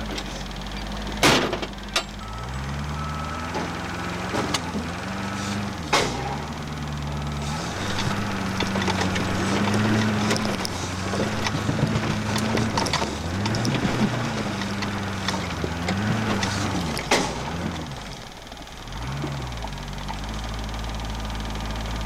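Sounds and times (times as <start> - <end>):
truck engine revving: 0.0 - 22.0
knocks and clatter from body: 7.9 - 17.7.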